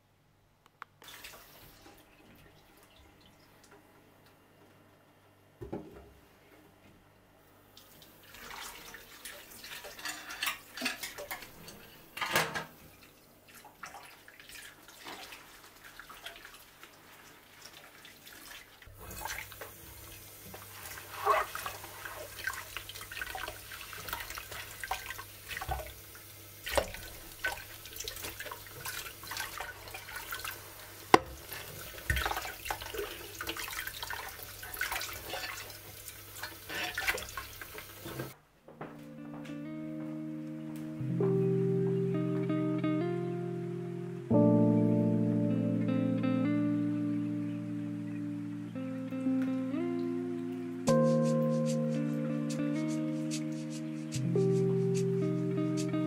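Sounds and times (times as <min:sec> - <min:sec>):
dishes clinking: 0:09.9 - 0:12.7
tap water running into sink: 0:18.4 - 0:38.4
sponge scrubbing: 0:20.6 - 0:22.6.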